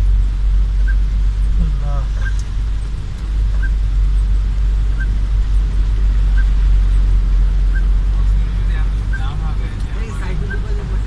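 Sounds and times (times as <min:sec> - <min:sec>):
engine and road rumble: 0:00.0 - 0:11.0.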